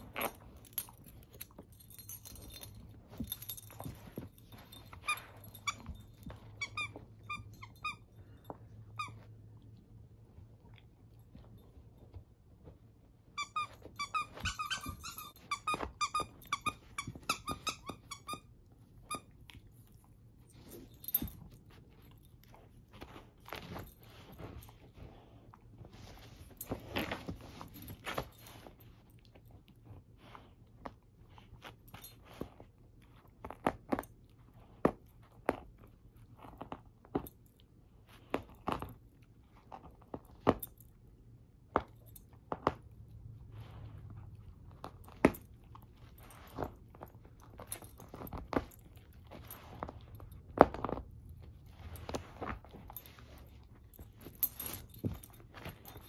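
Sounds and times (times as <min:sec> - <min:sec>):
squeaky toy squeaking: 0:06.6 - 0:08.1, 0:13.4 - 0:19.3
dog chewing on cloth: 0:41.8 - 0:56.0.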